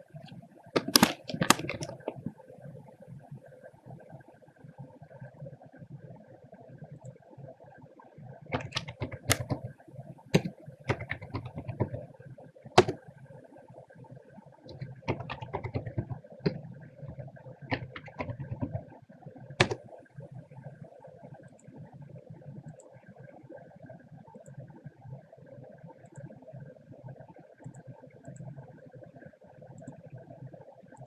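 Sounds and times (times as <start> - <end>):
keyboard key clicks: 0.8 - 2.3, 8.5 - 9.7, 10.4 - 12.0, 12.8 - 13.0, 14.7 - 18.8, 19.6 - 19.8.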